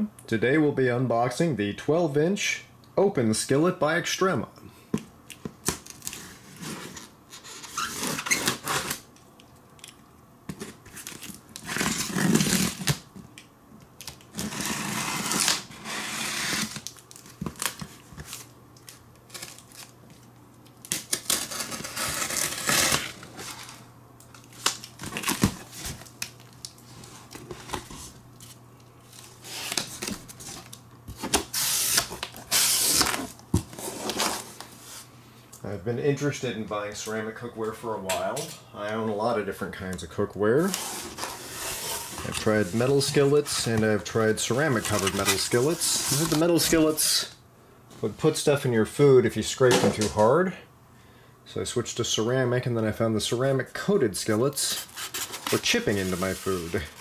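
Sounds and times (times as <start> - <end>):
tape tearing: 5.6 - 9.1, 10.5 - 13.1, 14.0 - 34.7, 40.6 - 47.0, 54.6 - 57.0
knife slitting packing tape: 14.1 - 17.0, 20.8 - 23.2, 31.2 - 34.4
cardboard flaps rustling: 40.6 - 47.0, 54.7 - 57.0.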